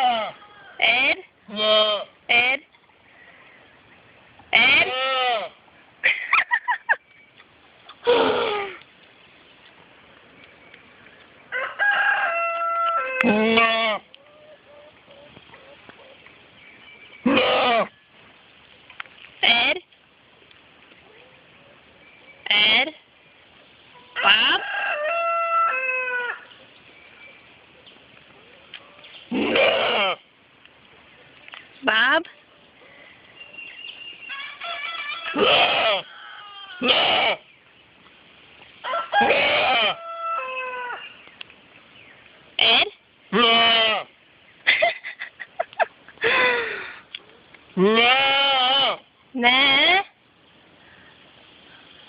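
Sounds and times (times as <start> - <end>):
goat yelling bleats: 0.0 - 2.1, 4.5 - 5.5, 13.2 - 14.0, 29.3 - 30.2, 35.3 - 36.1, 36.7 - 37.4, 39.2 - 40.0, 42.6 - 44.1, 47.8 - 50.0
rooster crowing: 11.5 - 13.4, 24.0 - 26.5, 34.2 - 36.9, 38.8 - 41.1.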